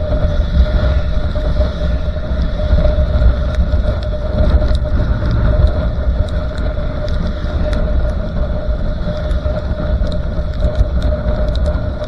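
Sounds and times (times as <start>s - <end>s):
wind buffeting: 0.0s - 12.0s
faint ticks: 2.3s - 12.0s
mid-pitched drone: 4.1s - 8.7s
motorcycle engine rumble: 4.2s - 9.0s.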